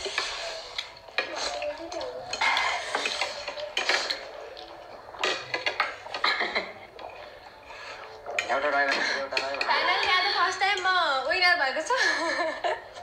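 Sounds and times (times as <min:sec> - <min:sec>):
forks clinking and scraping plates: 0:00.0 - 0:07.3, 0:07.9 - 0:10.9.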